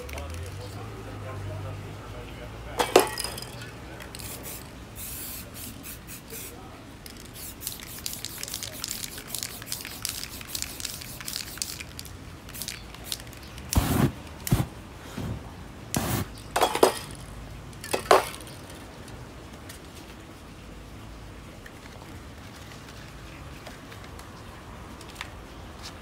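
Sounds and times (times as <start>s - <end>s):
spray paint hissing bursts: 4.1s - 14.7s, 15.9s - 17.1s.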